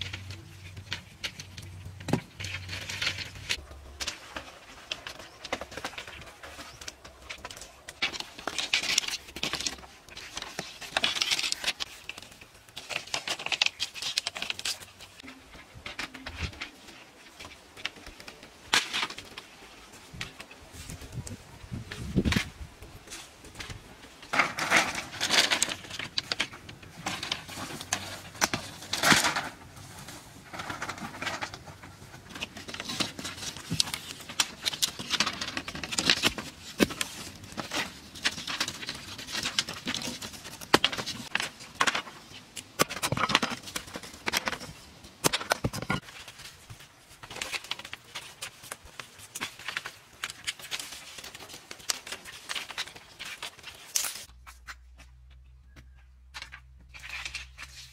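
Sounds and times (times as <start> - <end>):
bamboo poles clattering: 0.0 - 57.9.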